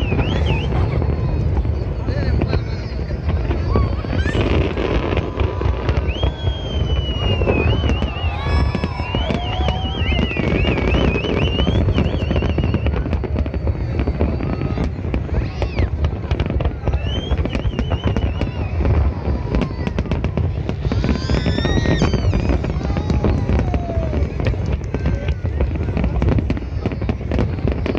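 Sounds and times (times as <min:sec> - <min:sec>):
firework whistles: 0:00.0 - 0:27.9
fireworks crackles and bangs: 0:00.0 - 0:27.9.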